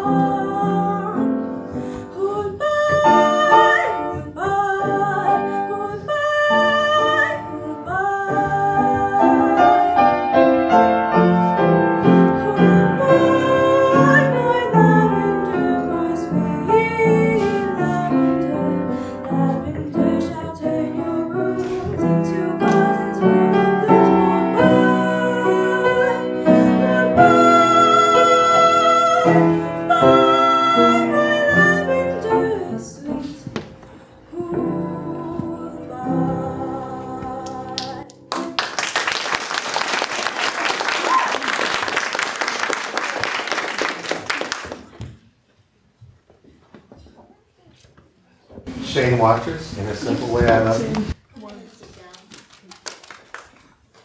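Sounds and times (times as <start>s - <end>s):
girl singing: 0.0s - 1.4s, 2.1s - 10.2s, 12.0s - 38.8s
piano chords: 0.0s - 39.2s.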